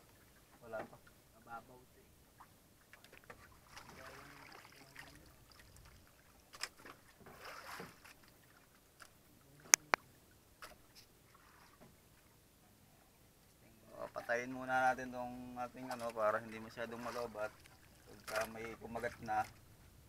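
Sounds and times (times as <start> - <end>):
water lapping against boat hull: 2.3 - 12.4, 15.7 - 19.9.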